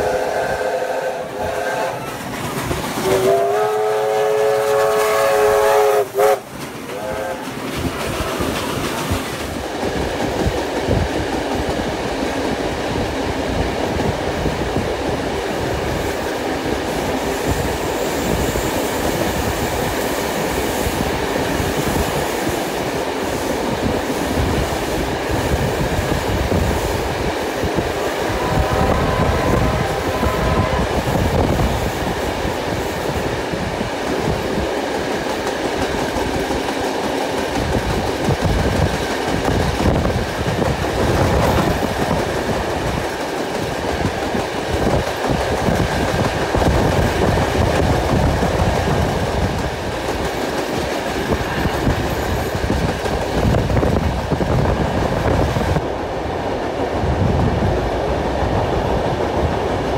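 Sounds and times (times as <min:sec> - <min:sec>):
steam locomotive whistle: 0:00.0 - 0:02.4, 0:03.0 - 0:07.6, 0:28.0 - 0:31.4
train rumble: 0:00.0 - 0:59.9.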